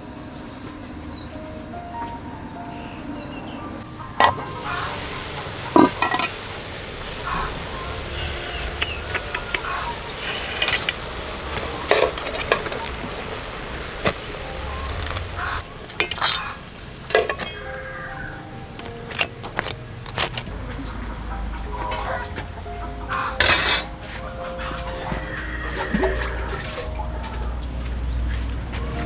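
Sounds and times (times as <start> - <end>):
metal cookware clinking: 4.2 - 7.4, 8.1 - 13.3, 14.9 - 17.8, 18.8 - 20.5, 23.1 - 24.0
steady hiss: 4.2 - 17.8.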